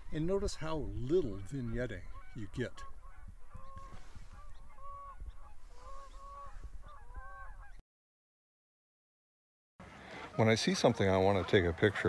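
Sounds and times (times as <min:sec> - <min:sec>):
geese honking: 0:00.0 - 0:07.8
wind rumble on microphone: 0:00.0 - 0:07.8.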